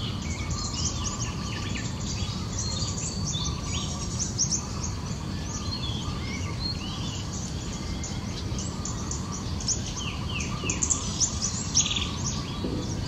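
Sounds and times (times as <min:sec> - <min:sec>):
small birds chirping: 0:00.0 - 0:13.0
low background rumble: 0:06.3 - 0:13.0.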